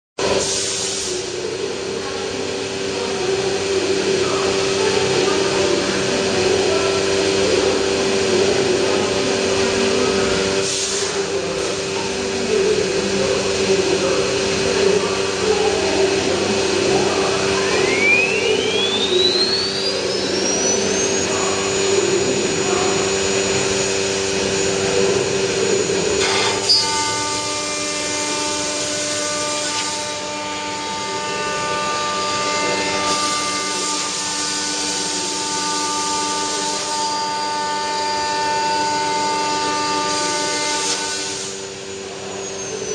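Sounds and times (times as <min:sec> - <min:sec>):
cnc router machine hum: 0:00.2 - 0:42.9
spindle motor whine: 0:00.2 - 0:42.9.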